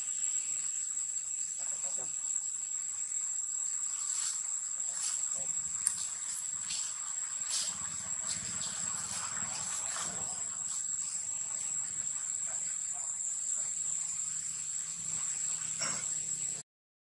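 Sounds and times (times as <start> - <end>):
insects droning: 0.0 - 16.6.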